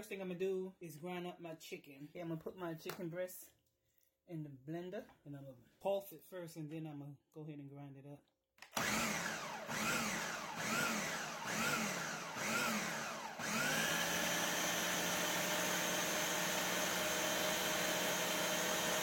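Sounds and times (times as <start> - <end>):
blender motor grinding: 8.7 - 19.0.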